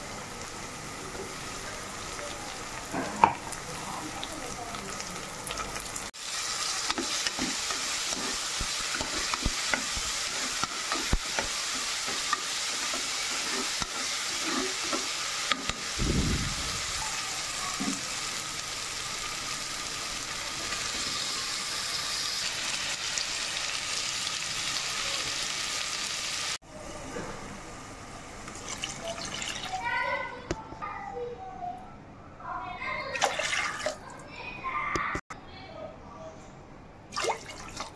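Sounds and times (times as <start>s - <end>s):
vegetables sizzling in oil: 0.0s - 26.6s
ladle scraping against pot: 6.9s - 15.8s.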